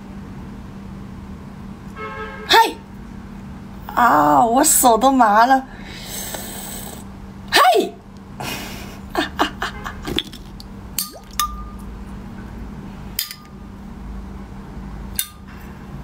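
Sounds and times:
metal spoon clinking in glass: 11.0 - 11.8.

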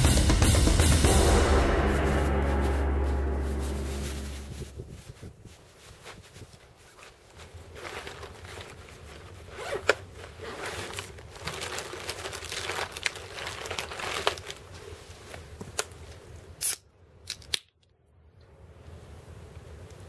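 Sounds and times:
plastic bag rustling: 2.2 - 15.8.

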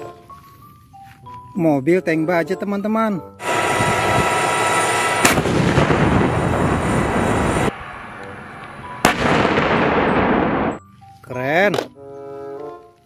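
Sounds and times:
tank cannon blasts with rumble: 3.5 - 7.7, 9.0 - 10.7.

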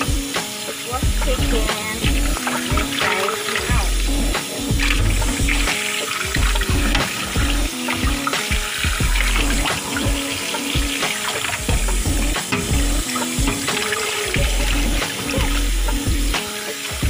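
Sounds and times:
tap water splashing on chicken: 0.0 - 15.7
background music with deep bass: 0.0 - 17.0.

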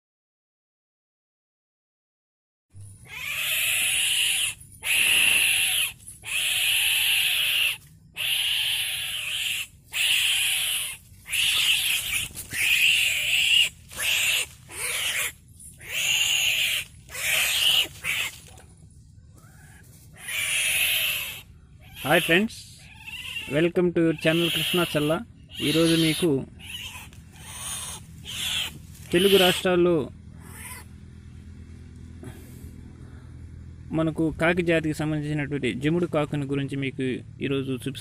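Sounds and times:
bird giving harsh rasping calls: 2.9 - 18.6, 19.3 - 30.9.

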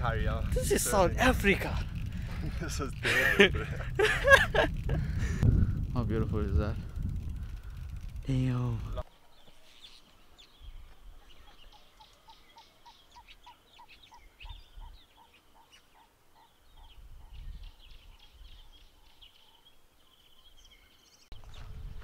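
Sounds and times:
wind buffeting microphone: 0.0 - 9.0, 14.1 - 15.0, 16.6 - 19.1, 21.3 - 22.0
birds chirping and trilling: 0.0 - 22.0.

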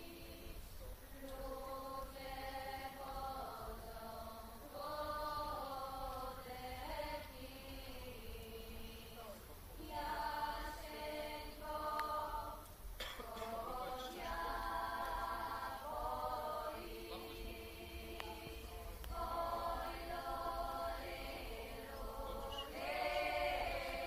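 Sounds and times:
women singing a cappella harmony: 0.0 - 24.0.

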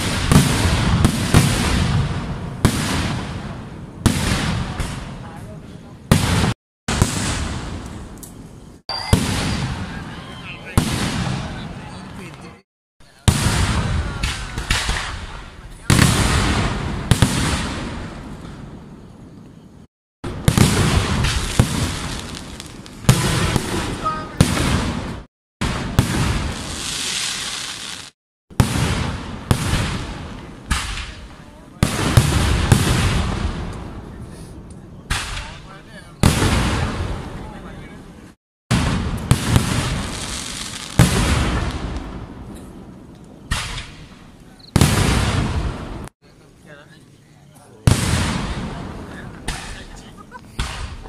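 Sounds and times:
fireworks bursting and crackling: 0.0 - 19.3, 20.2 - 46.5, 47.7 - 51.0
fireworks shells bursting: 38.7 - 46.1.

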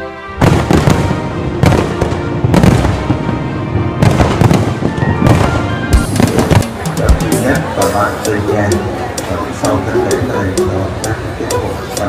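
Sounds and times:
fireworks crackling and banging: 0.4 - 9.3.

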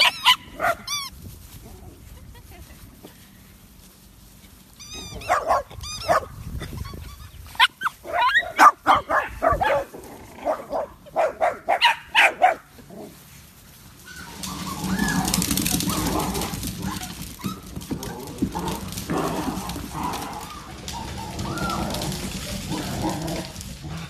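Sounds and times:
small dogs barking and yipping: 0.0 - 1.2, 4.8 - 12.8, 14.0 - 23.6.

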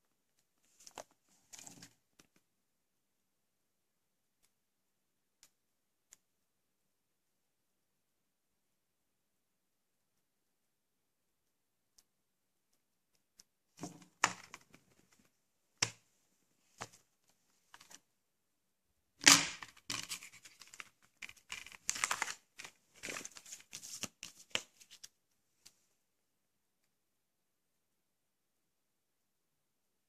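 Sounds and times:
plastic packaging rustling and tearing: 19.2 - 24.6.

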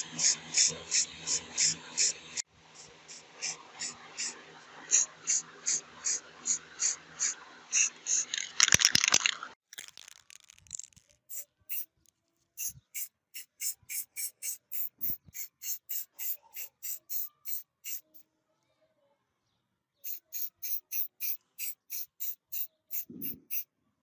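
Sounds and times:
paintbrush scratchy strokes on metal: 11.3 - 11.9, 12.6 - 18.2, 20.0 - 23.6.

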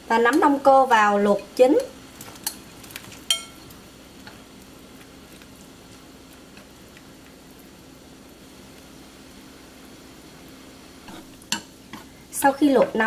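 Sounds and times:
water boiling in a pan: 0.0 - 13.0
bowl clinking against pan: 3.3 - 3.6.

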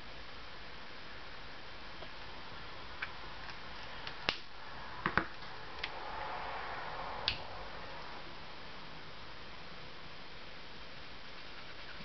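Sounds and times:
soft rubbing: 11.1 - 12.0.

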